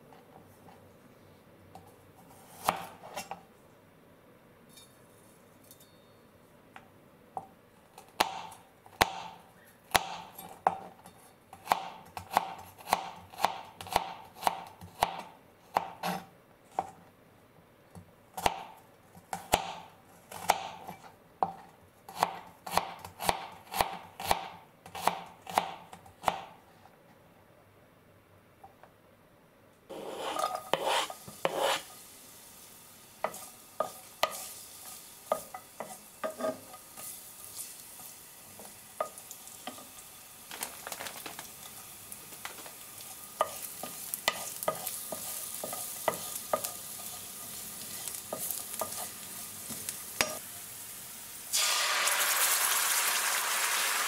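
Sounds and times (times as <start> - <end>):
knife chopping on cutting board: 29.9 - 31.8.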